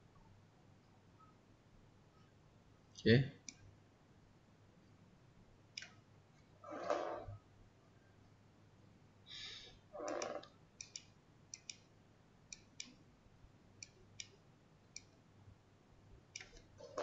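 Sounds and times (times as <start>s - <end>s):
faint computer mouse clicks: 10.8s - 11.9s, 12.5s - 13.0s, 16.4s - 16.7s.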